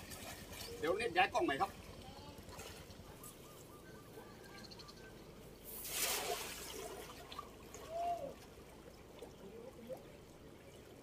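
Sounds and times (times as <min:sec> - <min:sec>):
man wading through water: 0:00.0 - 0:00.8
water flowing in a stream: 0:00.0 - 0:03.8, 0:05.3 - 0:11.0
cast net splashing: 0:05.6 - 0:08.6.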